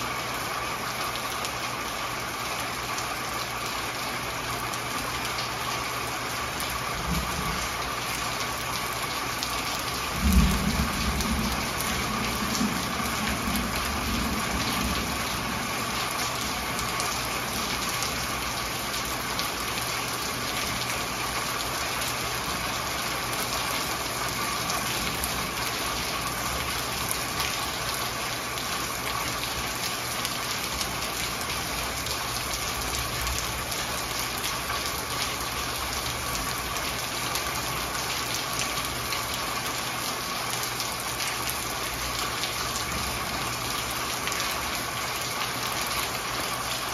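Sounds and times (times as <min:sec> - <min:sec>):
steady rain: 0:00.0 - 0:46.9
thunder rumbling: 0:07.0 - 0:07.8, 0:10.0 - 0:16.6.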